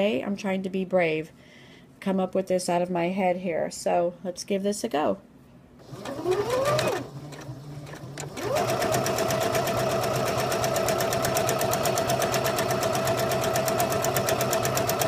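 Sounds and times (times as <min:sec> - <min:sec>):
sewing machine stitching: 0:05.8 - 0:15.0
sewing machine click: 0:05.9 - 0:09.5.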